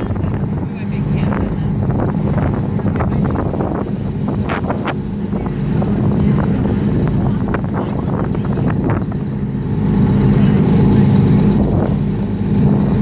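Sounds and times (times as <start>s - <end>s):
boat engine running: 0.0s - 13.0s
wind buffeting microphone: 0.0s - 13.0s.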